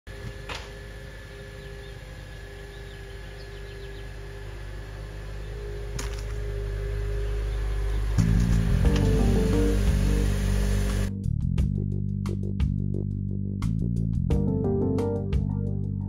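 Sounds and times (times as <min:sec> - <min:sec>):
car engine idling: 0:03.3 - 0:11.1.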